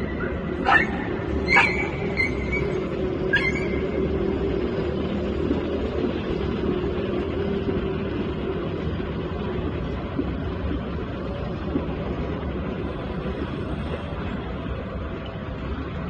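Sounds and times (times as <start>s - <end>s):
city traffic rumble: 0.0s - 16.0s
hum: 0.0s - 16.0s
small dog yelping: 0.6s - 3.9s.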